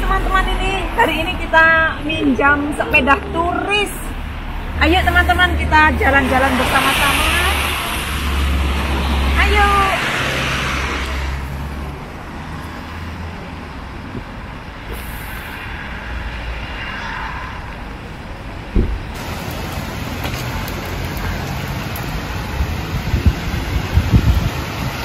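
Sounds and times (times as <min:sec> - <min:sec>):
street traffic: 0:00.0 - 0:25.0
thump: 0:18.7 - 0:19.2.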